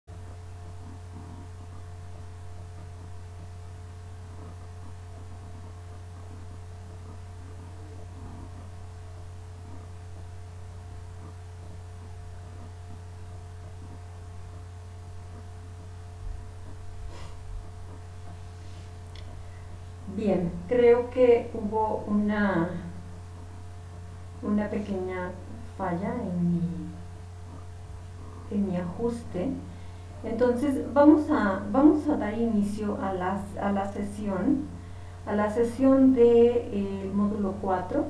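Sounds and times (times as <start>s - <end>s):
low electrical hum: 0.1s - 38.0s.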